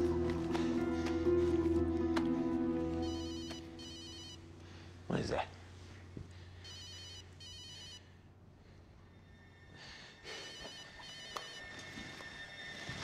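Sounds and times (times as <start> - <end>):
cell phone ringtone trilling: 3.0 - 4.4, 6.6 - 8.1, 10.2 - 11.8.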